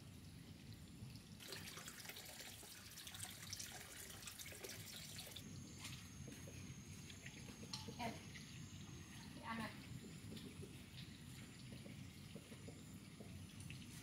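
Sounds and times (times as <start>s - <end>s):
water running: 1.4s - 6.4s.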